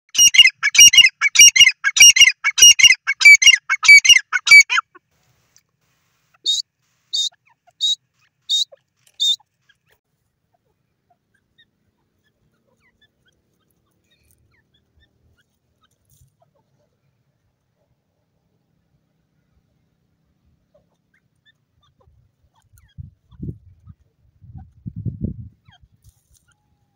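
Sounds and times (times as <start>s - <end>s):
harsh repeated bird calls: 0.1s - 5.0s, 6.4s - 10.0s.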